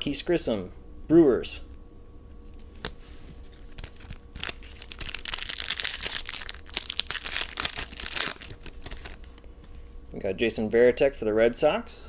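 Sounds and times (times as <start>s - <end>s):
wrapper crinkling: 3.5s - 9.4s.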